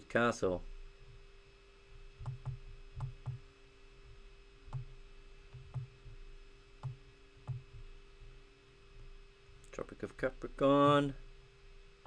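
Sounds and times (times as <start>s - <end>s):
faint steady hum: 0.0s - 12.0s
computer mouse clicking: 2.2s - 3.4s.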